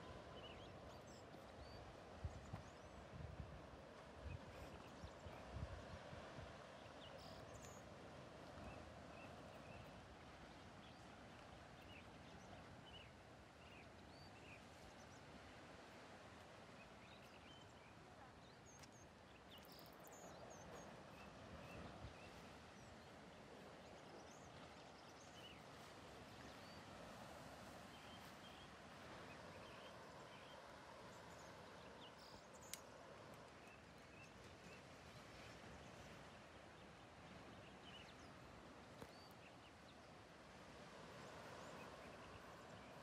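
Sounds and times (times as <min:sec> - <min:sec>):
faint bird chirps: 0:06.8 - 0:07.9, 0:17.0 - 0:23.1.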